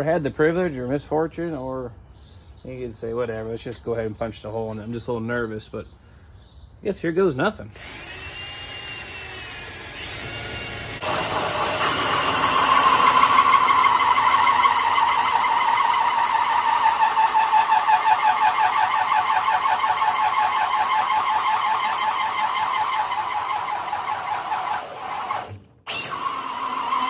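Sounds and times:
drill whirring: 7.7s - 27.0s
hole saw squealing through metal: 7.7s - 27.0s.

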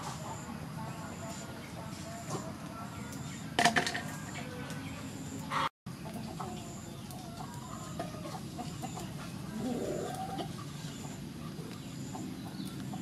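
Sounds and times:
chickens clucking: 0.0s - 13.0s.

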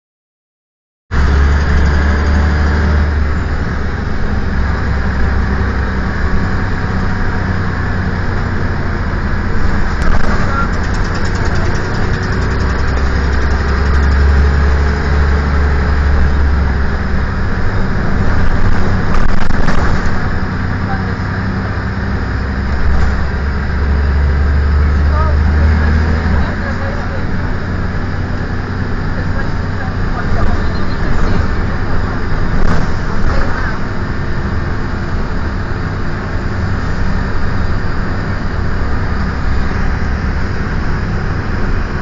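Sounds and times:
bus diesel engine drone: 1.1s - 42.0s.

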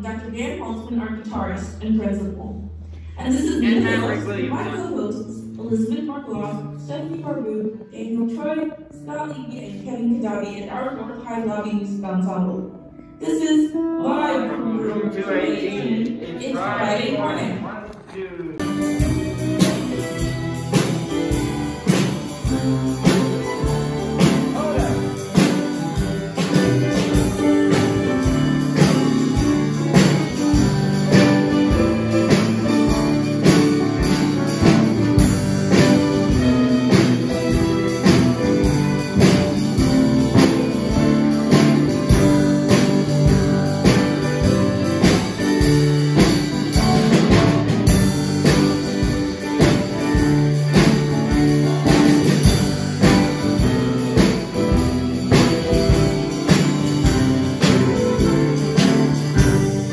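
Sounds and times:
electric guitar: 18.6s - 59.9s
steady drum beat: 18.6s - 59.9s.

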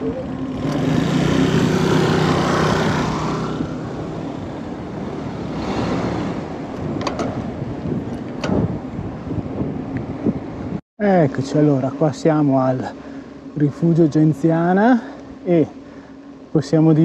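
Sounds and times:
car passing by: 5.0s - 6.6s.

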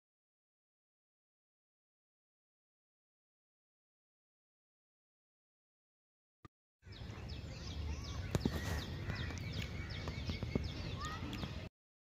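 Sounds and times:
birds chirping: 6.8s - 11.7s.

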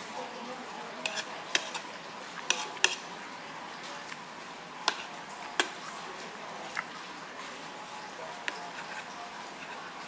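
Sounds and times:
steady background noise: 0.0s - 10.0s
cutlery clinking on plate: 1.0s - 1.8s.

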